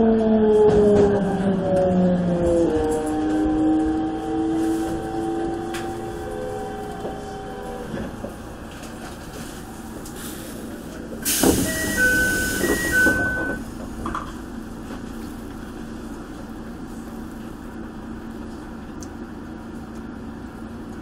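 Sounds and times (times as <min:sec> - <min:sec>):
air hiss with thump: 0:11.2 - 0:13.0.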